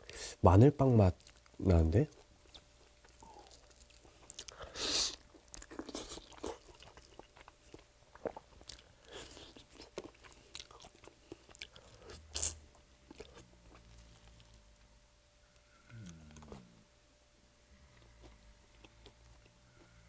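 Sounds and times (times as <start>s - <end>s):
person chewing fried chicken: 1.2s - 14.6s, 18.0s - 20.0s.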